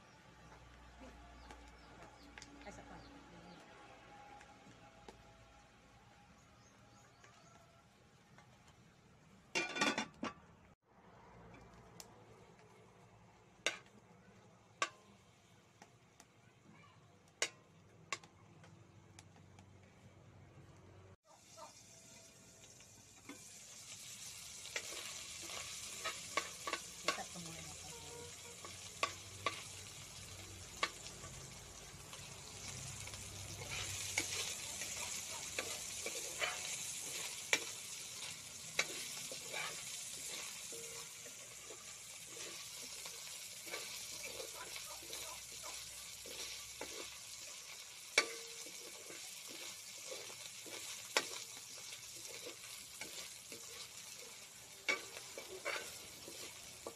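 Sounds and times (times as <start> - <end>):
meat sizzling in a wok: 0.0 - 5.9, 11.5 - 16.4, 21.2 - 56.9
metal ladle scraping pan: 33.4 - 44.6, 48.1 - 56.9.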